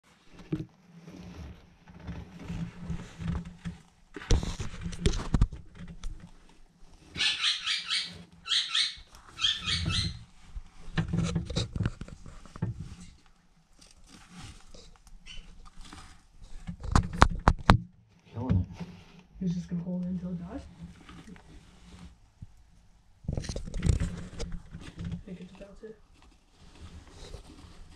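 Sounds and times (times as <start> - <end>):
mouse squealing: 7.2 - 10.2.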